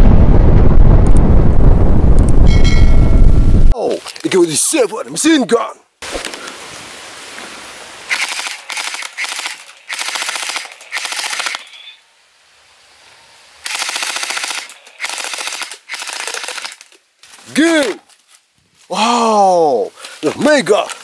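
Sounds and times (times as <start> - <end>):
gel blaster firing bursts: 8.1 - 11.7.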